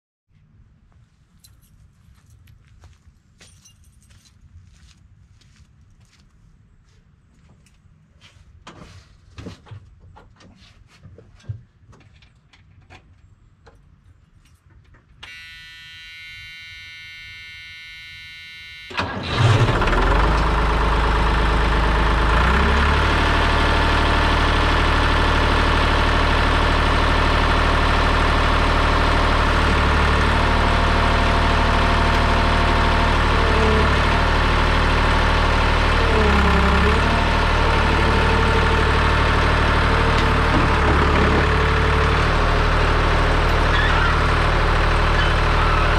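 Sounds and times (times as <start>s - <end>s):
high electronic tone: 15.2s - 19.2s
diesel engine cranking and starting: 18.8s - 45.9s
diesel engine idling: 18.9s - 45.9s.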